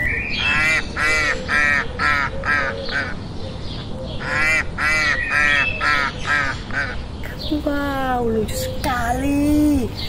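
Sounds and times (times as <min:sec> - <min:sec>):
ducks quacking: 0:00.4 - 0:03.2, 0:04.2 - 0:07.0.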